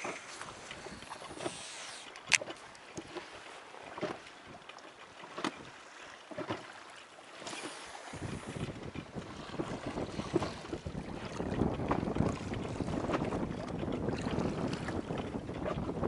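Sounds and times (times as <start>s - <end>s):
choppy water: 0.0s - 16.0s
wind buffeting microphone: 7.9s - 16.0s.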